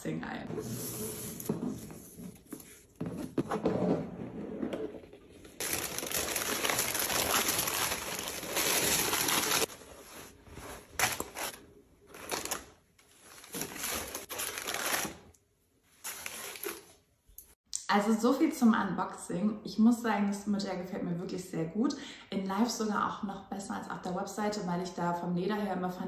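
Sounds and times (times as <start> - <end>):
tissue paper crinkling: 5.6 - 15.3, 16.0 - 17.0.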